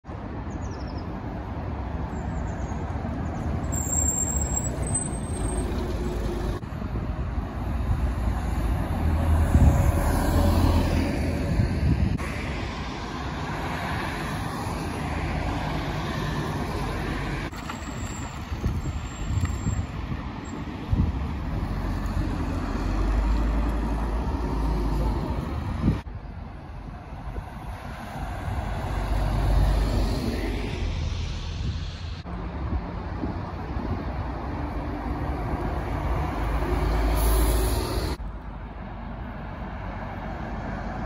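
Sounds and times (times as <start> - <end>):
road and traffic noise: 0.0 - 41.0
bus engine humming: 2.3 - 9.7.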